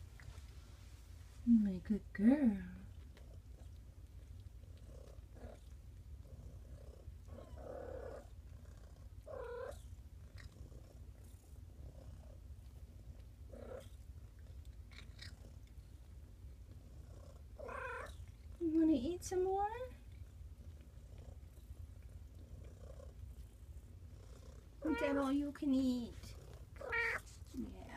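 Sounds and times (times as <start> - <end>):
cat purring: 0.0 - 27.9
cat mewing faintly: 26.8 - 27.4.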